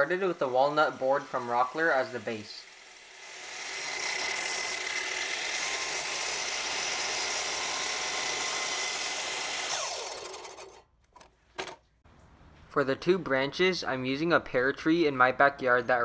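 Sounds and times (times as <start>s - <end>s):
miter saw cutting wood: 0.0s - 10.8s
saw motor spinning down: 0.0s - 10.8s.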